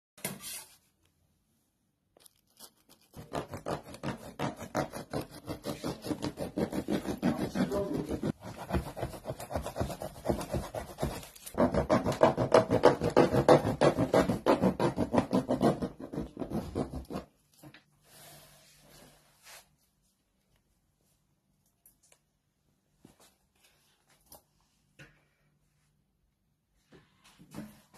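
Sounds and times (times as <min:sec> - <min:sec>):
blade rasping through plastic: 0:02.9 - 0:17.3.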